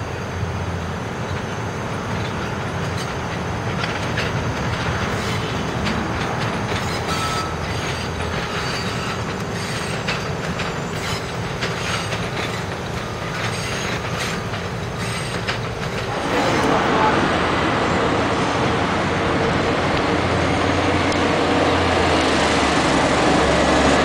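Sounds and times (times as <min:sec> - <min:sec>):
road traffic: 0:00.0 - 0:24.0
train wheels rumbling over rail joints: 0:00.0 - 0:24.0
faint wheel squeals: 0:06.8 - 0:12.7, 0:15.0 - 0:15.5.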